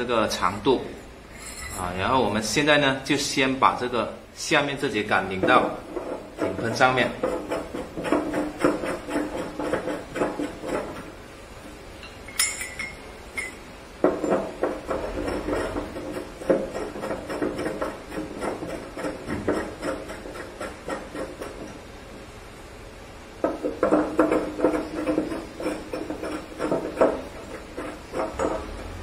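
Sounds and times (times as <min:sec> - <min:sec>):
sharp ringing metal clink: 0:12.0 - 0:13.6.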